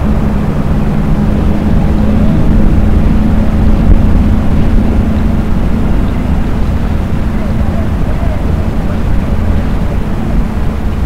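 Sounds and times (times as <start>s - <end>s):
boat motor running: 0.0s - 11.0s.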